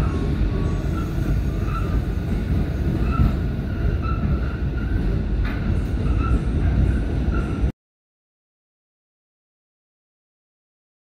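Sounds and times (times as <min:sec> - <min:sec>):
train rumbling on track: 0:00.0 - 0:07.7.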